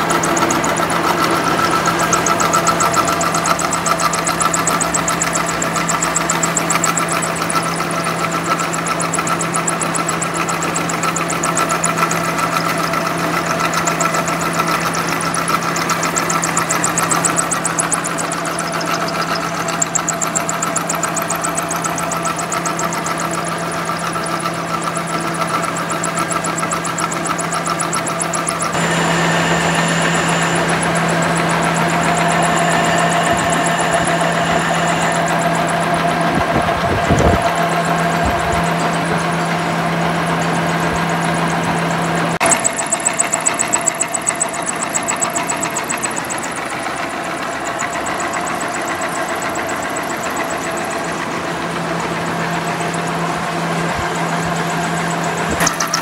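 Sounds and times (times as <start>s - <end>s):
milling machine cutting steel: 0.0s - 56.0s
thin high whistle: 28.9s - 36.3s.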